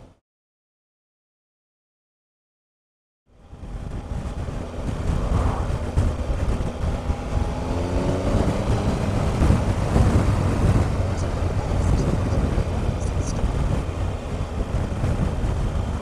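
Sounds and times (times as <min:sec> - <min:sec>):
motorcycle engine accelerating: 0:03.4 - 0:16.0
wind rush on microphone: 0:03.4 - 0:16.0.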